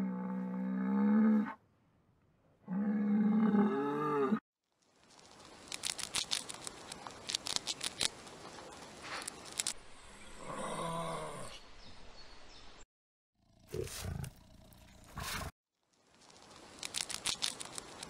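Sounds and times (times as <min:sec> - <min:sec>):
hamster gnawing with crisp clicks: 0:05.3 - 0:08.2, 0:16.2 - 0:18.0.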